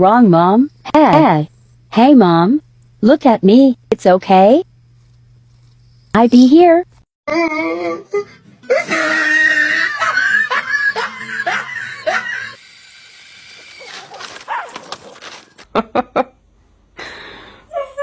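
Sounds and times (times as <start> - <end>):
person shrieking and laughing: 8.2 - 12.6.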